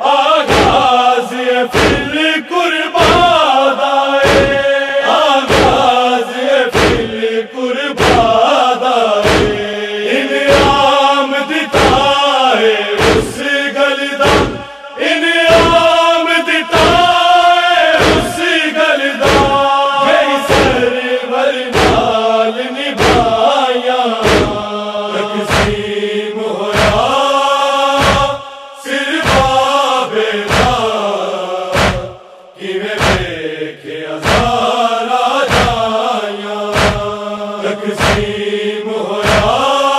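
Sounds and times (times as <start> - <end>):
men chanting in unison: 0.0 - 39.9
open-palm chest strikes: 0.5 - 0.9, 1.7 - 2.2, 3.0 - 3.4, 4.2 - 4.6, 5.5 - 5.9, 6.7 - 7.2, 8.0 - 8.4, 9.2 - 9.6, 10.5 - 10.9, 11.7 - 12.2, 13.0 - 13.4, 14.2 - 14.8, 15.5 - 15.9, 16.8 - 17.1, 18.0 - 18.4, 19.2 - 19.7, 20.5 - 20.8, 21.7 - 22.2, 23.0 - 23.4, 24.2 - 24.7, 25.5 - 25.9, 26.7 - 27.2, 28.0 - 28.5, 29.2 - 29.6, 30.5 - 30.9, 31.7 - 32.3, 32.9 - 33.4, 34.2 - 34.6, 35.4 - 35.9, 36.7 - 37.2, 37.9 - 38.4, 39.2 - 39.6.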